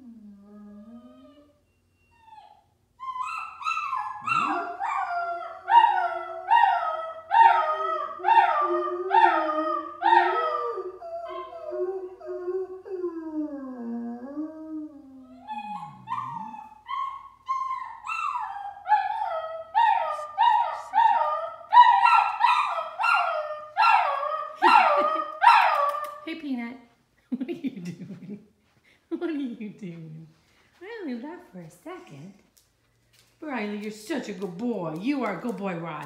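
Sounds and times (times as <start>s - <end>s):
puppy crying: 0.6s - 12.3s, 15.2s - 26.2s
dog howling softly: 4.1s - 6.8s, 14.8s - 21.8s.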